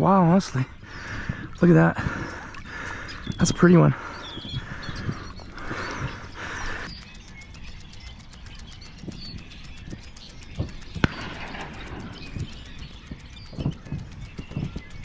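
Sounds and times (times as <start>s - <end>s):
faint bird chirping: 0.0s - 15.0s
sharp click: 6.5s - 15.0s.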